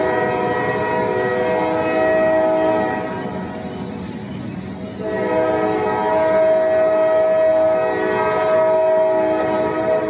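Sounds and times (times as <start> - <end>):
train horn blowing: 0.0 - 3.8, 4.9 - 10.0.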